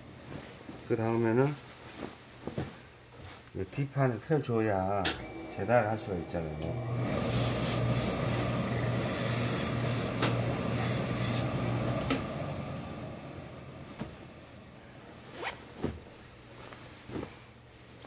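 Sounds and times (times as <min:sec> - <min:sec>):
steam iron hissing: 0:05.3 - 0:11.6.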